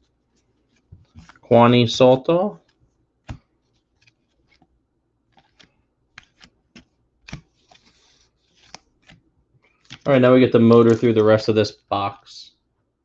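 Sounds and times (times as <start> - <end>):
cards being flipped by hand: 0.3 - 1.4, 2.6 - 11.4.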